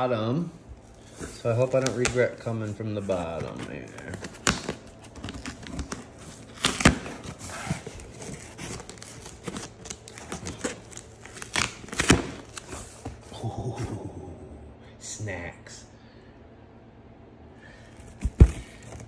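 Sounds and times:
cardboard box tearing open: 0:03.1 - 0:12.8.

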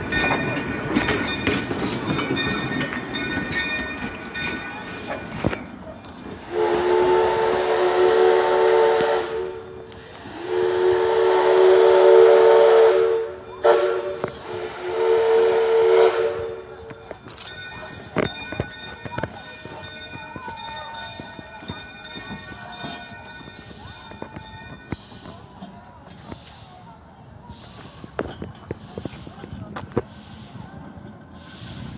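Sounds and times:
train clicks and squeals: 0:00.0 - 0:31.9
steam whistle blasts: 0:06.4 - 0:16.6.

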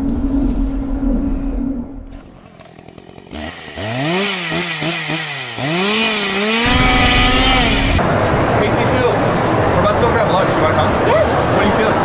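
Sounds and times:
chainsaw engine revving: 0:02.2 - 0:08.0.

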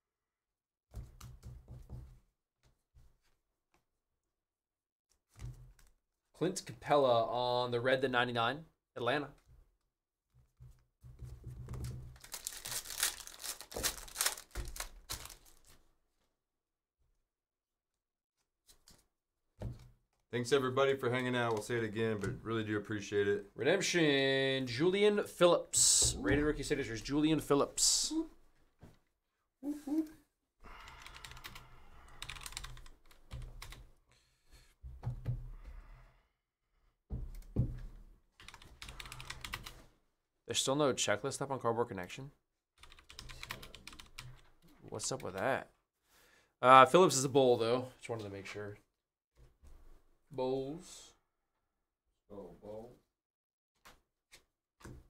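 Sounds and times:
wrapper crinkling and crackling: 0:12.2 - 0:15.9
typing on computer keyboard: 0:30.9 - 0:33.8, 0:38.4 - 0:39.8, 0:42.8 - 0:44.4.

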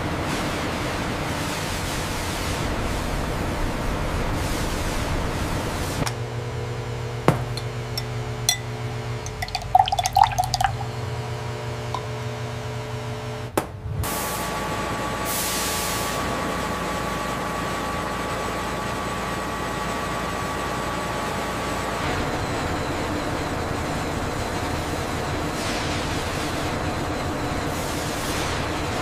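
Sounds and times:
glass clinks: 0:07.6 - 0:08.7, 0:09.3 - 0:10.9
water rushing through pulp: 0:09.3 - 0:10.9
pulp slurry pouring into tank: 0:09.3 - 0:11.0.

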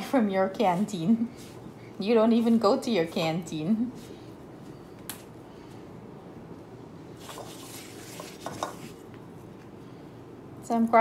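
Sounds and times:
steady low hum: 0:00.0 - 0:11.0
hand scraping dough crumbs: 0:07.2 - 0:09.6.

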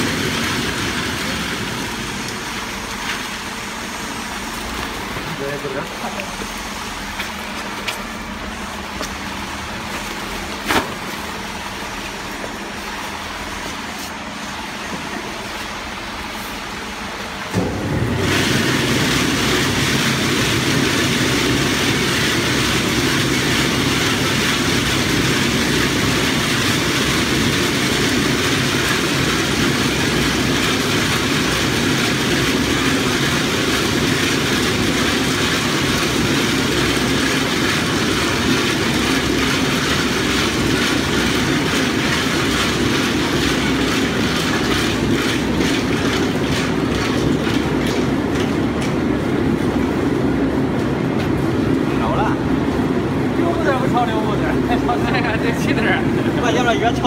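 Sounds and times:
peanuts rattling in drum roaster: 0:00.0 - 0:12.7, 0:17.4 - 0:49.8
machine hum: 0:00.0 - 0:57.0.

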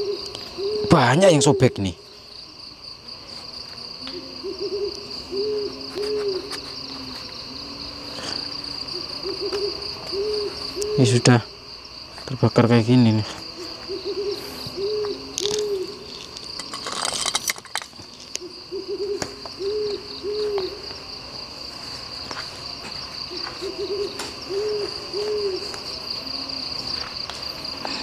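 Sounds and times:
owl hooting: 0:00.0 - 0:02.2, 0:03.9 - 0:11.6, 0:13.4 - 0:17.0, 0:18.4 - 0:21.0, 0:23.2 - 0:28.0
high-pitched insect drone: 0:00.0 - 0:28.0.

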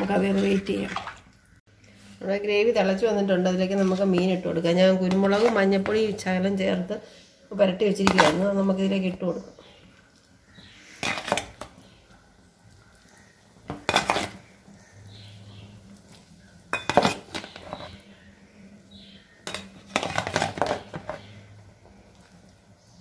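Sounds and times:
metal spoon clinking on pot: 0:16.7 - 0:17.3.

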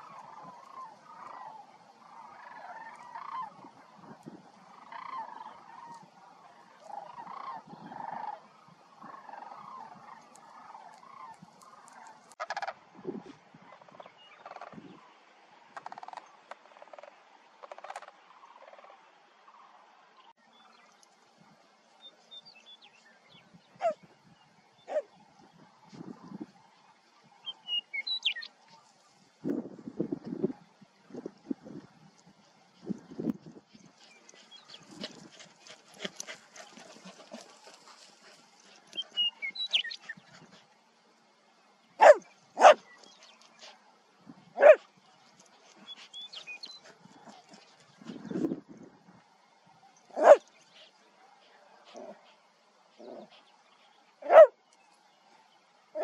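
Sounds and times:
birds chirping: 0:00.0 - 0:12.7, 0:19.5 - 0:29.2, 0:31.7 - 0:48.6, 0:49.4 - 0:56.0
dog play bark: 0:42.0 - 0:42.8, 0:44.6 - 0:44.8, 0:50.2 - 0:50.4, 0:54.2 - 0:54.5.

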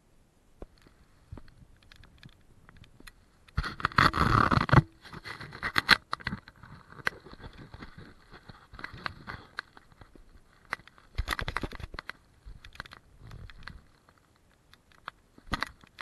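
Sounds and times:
handling knocks and clicks: 0:00.6 - 0:16.0
camera handling rubbing scrape: 0:03.5 - 0:09.9.

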